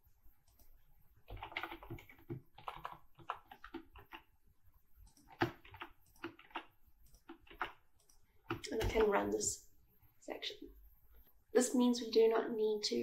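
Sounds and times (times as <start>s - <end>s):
typing on computer keyboard: 0.4s - 4.4s, 5.0s - 9.2s.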